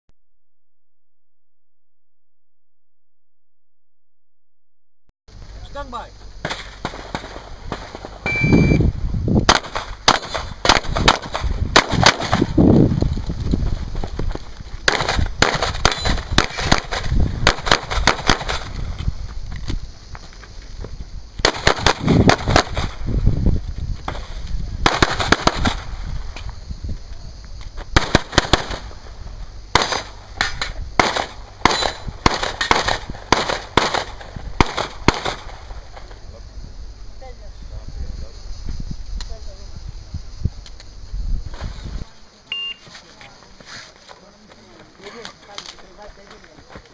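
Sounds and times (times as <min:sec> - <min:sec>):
shot timer beep: 0:08.3 - 0:08.9, 0:42.5 - 0:42.8.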